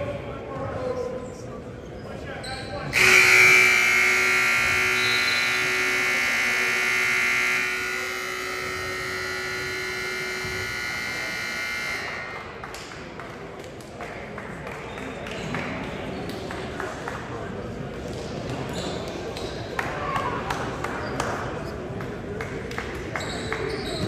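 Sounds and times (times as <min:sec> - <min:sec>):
scoreboard horn buzzing: 0:02.9 - 0:12.7.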